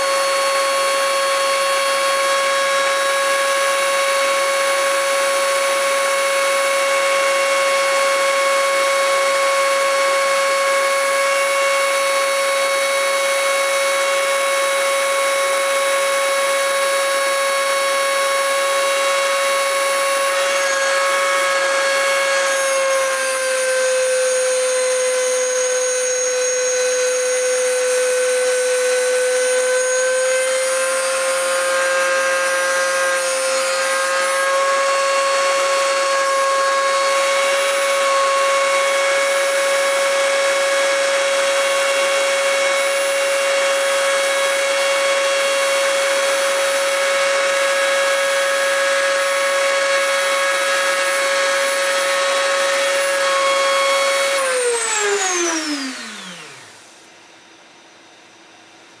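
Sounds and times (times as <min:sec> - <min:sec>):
rotary tool cutting disc whine: 0:00.0 - 0:57.0
rotary tool spinning down: 0:22.3 - 0:41.6, 0:42.9 - 0:57.0.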